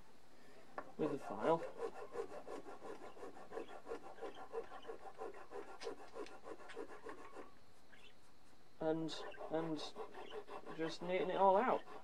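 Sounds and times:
file rasping on wood: 0:01.0 - 0:07.5, 0:09.1 - 0:12.0.

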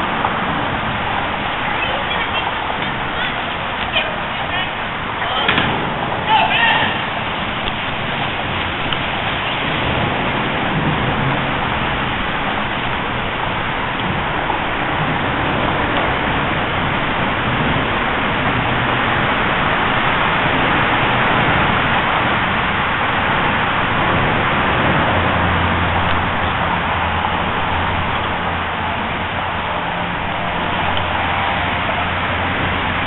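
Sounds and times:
highway traffic roar: 0:00.0 - 0:33.0.

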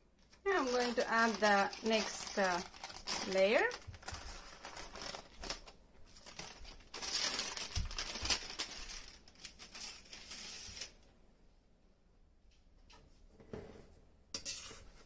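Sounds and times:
baking paper rustling: 0:00.3 - 0:11.0.

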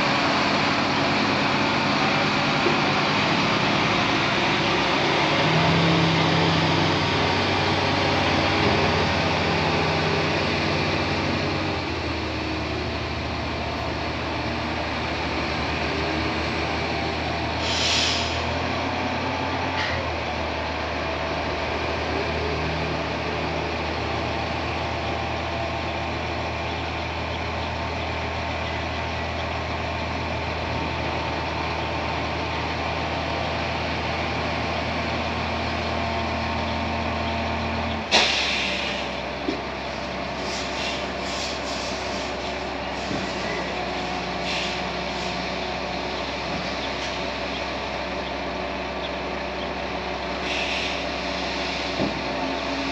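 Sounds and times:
diesel truck engine running: 0:00.0 - 0:52.9
air hiss: 0:17.6 - 0:18.5, 0:38.1 - 0:39.2, 0:40.4 - 0:42.4, 0:44.4 - 0:45.3, 0:50.4 - 0:52.0.

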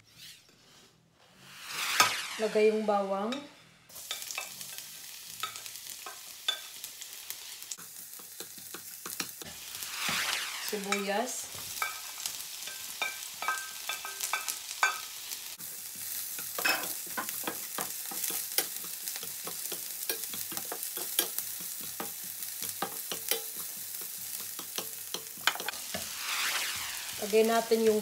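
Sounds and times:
onion and garlic sizzling in oil: 0:01.5 - 0:28.0.

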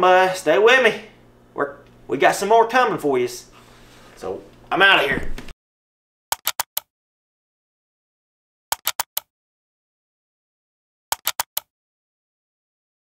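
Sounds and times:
sharp mouse clicks: 0:06.4 - 0:06.9, 0:08.7 - 0:09.3, 0:11.1 - 0:11.7.

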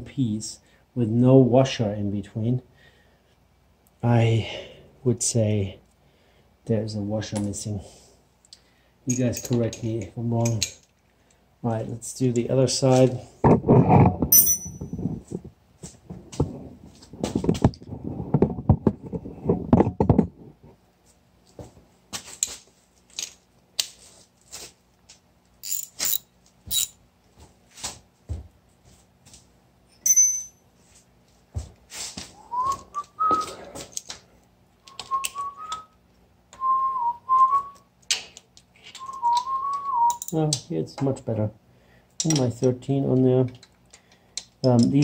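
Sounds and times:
wrench and ratchet clinking: 0:14.3 - 0:15.0, 0:25.6 - 0:27.0, 0:30.0 - 0:30.6, 0:40.1 - 0:40.4
short metallic ping: 0:14.4 - 0:14.9, 0:30.1 - 0:30.6
man whistling a tune: 0:32.4 - 0:33.6, 0:34.8 - 0:36.0, 0:36.6 - 0:37.9, 0:39.0 - 0:40.3.

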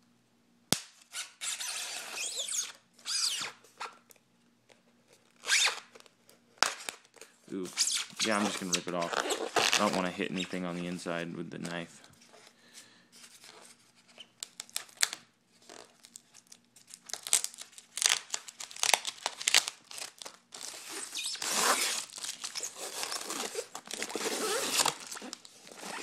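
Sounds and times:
packing tape tearing: 0:00.7 - 0:04.0, 0:05.2 - 0:10.6, 0:13.3 - 0:26.0
fingernails scratching tape: 0:01.1 - 0:03.6, 0:05.4 - 0:05.9, 0:20.8 - 0:26.0.

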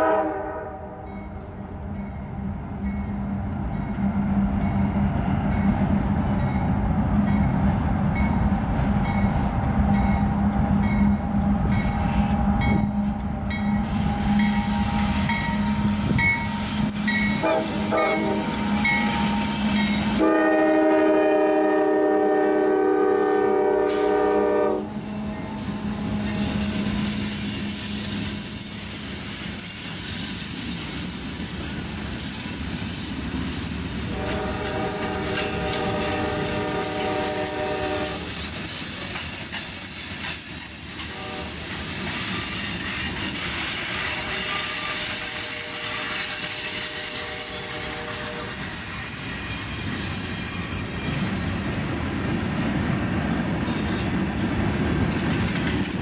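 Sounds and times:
locomotive horn: 0:00.0 - 0:01.1, 0:13.9 - 0:28.2, 0:34.1 - 0:38.3, 0:41.0 - 0:41.7, 0:43.8 - 0:48.8
train wheels rumbling and clattering: 0:01.1 - 0:56.0
high wheel squeal: 0:37.9 - 0:51.7, 0:53.5 - 0:54.6.

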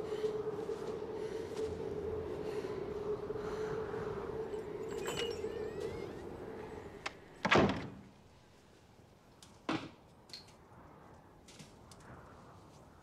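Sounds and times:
door slamming shut: 0:07.4 - 0:08.0.

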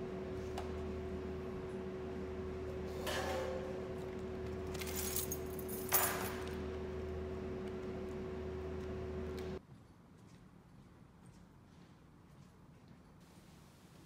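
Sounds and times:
steady electrical hum: 0:00.0 - 0:09.6
metal clinks and jingles: 0:04.8 - 0:06.5.

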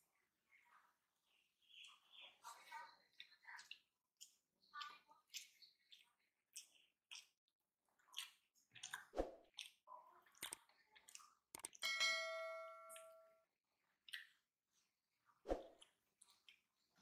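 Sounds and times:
bell chime: 0:11.8 - 0:13.4.

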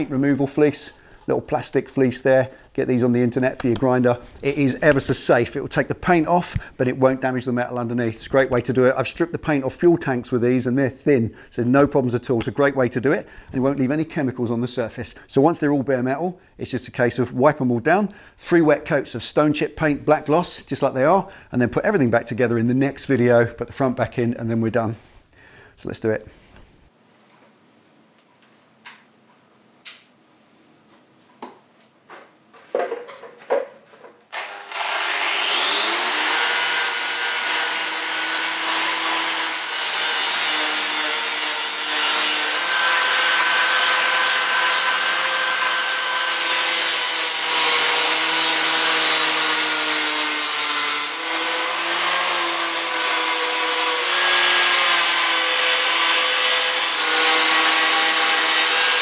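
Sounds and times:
angle grinder stripping paint: 0:34.3 - 0:59.0.

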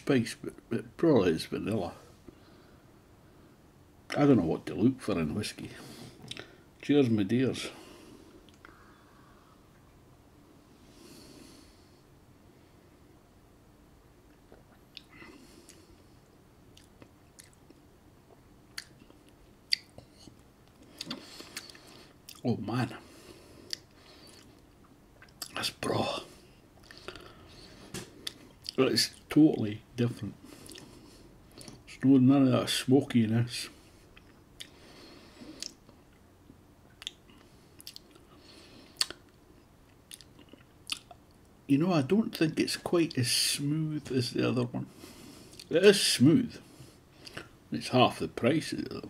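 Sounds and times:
quiet breaths: 0:01.8 - 0:03.9, 0:05.4 - 0:06.9, 0:07.5 - 0:13.4, 0:14.5 - 0:16.4, 0:19.9 - 0:24.8, 0:25.6 - 0:29.2, 0:30.0 - 0:36.1, 0:37.2 - 0:39.4, 0:43.3 - 0:49.0
lip smacks and tongue clicks: 0:16.7 - 0:17.8, 0:18.7 - 0:22.4, 0:30.6 - 0:30.9, 0:35.6 - 0:35.9, 0:36.9 - 0:38.2, 0:39.0 - 0:41.3
wet lip smacks: 0:39.0 - 0:39.2.

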